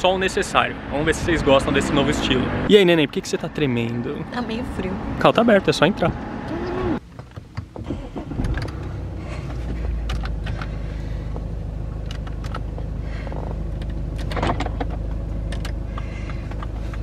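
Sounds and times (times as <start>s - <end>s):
diesel engine cranking: 4.8s - 17.0s
diesel engine idling: 7.9s - 17.0s.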